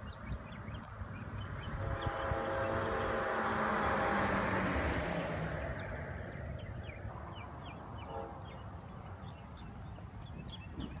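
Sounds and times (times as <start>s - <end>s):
small birds chirping: 0.0s - 3.2s, 5.4s - 11.0s
freight train rumble: 1.4s - 10.9s.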